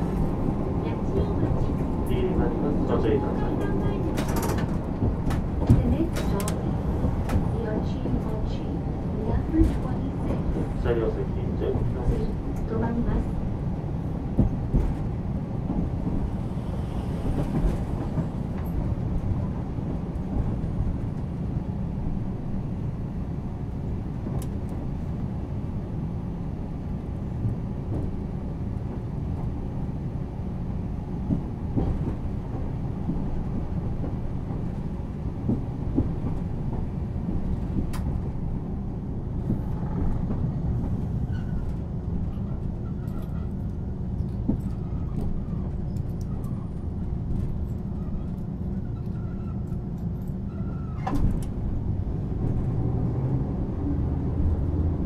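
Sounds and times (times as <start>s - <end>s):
tram wheels rumbling on rail: 0.0s - 55.0s.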